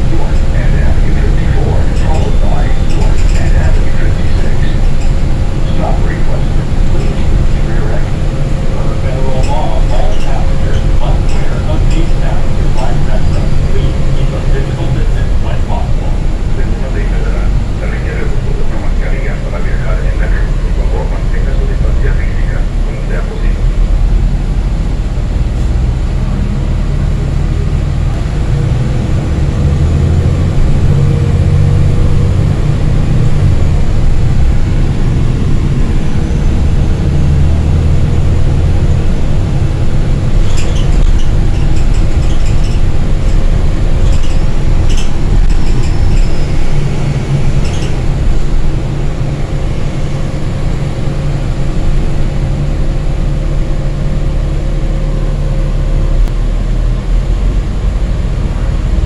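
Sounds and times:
bus engine drone: 0.0 - 59.0.

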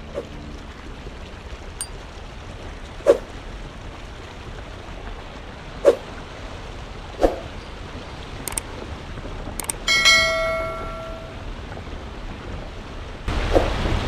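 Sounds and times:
mouse clicks: 9.6 - 9.8
bright bell ding: 9.6 - 11.4.

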